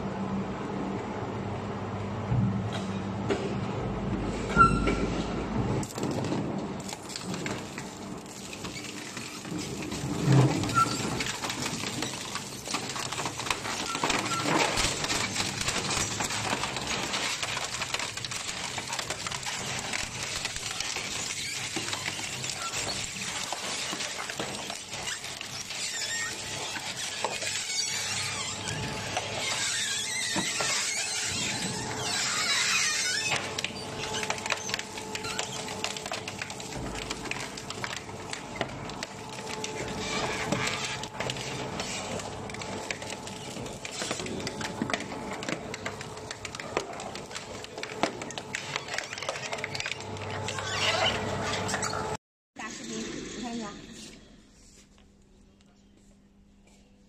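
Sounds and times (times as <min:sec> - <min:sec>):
shredder crushing sheet metal: 0:05.8 - 0:51.7.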